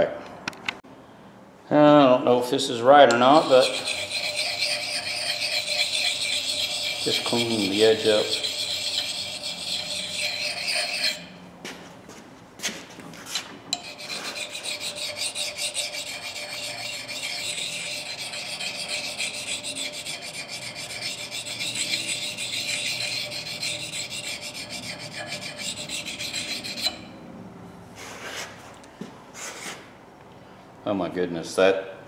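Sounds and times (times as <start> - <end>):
sharpener rubbing hatchet edge: 3.1 - 11.3, 13.8 - 27.0.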